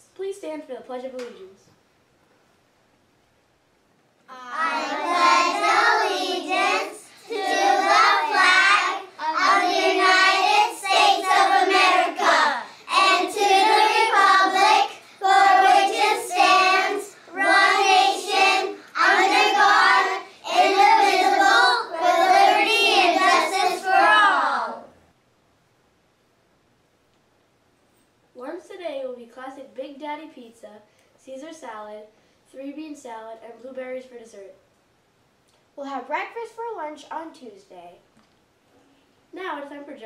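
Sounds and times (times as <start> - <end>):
children reciting in unison: 4.3 - 24.8.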